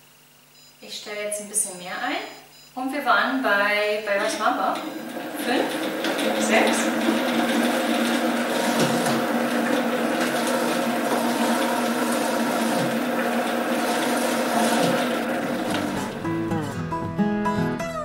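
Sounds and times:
blender chopping vegetables: 4.2 - 16.5.

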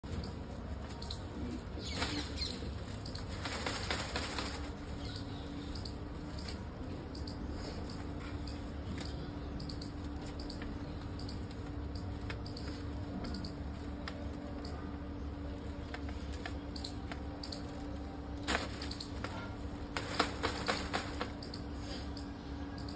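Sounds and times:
kites rustling and crinkling: 0.0 - 6.9, 10.2 - 21.6
faint steady hum: 0.0 - 22.9.

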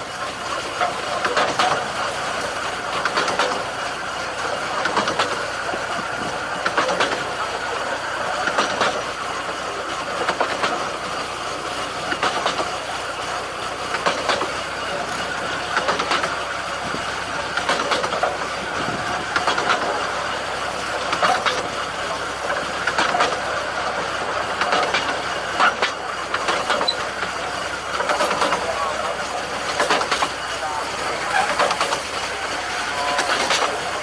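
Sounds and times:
railway carriage rolling: 0.0 - 34.0
wheel clicks over rail joints: 0.0 - 34.0.

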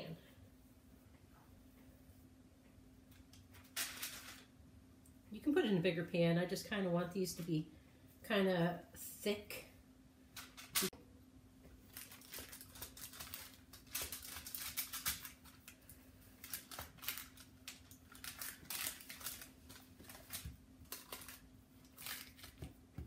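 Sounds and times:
faint steady hum: 0.0 - 23.0
parchment paper rustling: 3.5 - 4.5, 11.8 - 23.0.

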